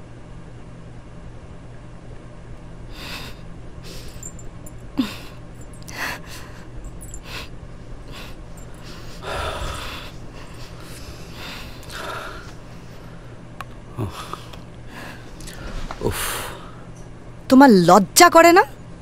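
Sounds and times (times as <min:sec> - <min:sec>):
woman sniffing and gasping: 0:02.9 - 0:04.4, 0:05.0 - 0:12.9.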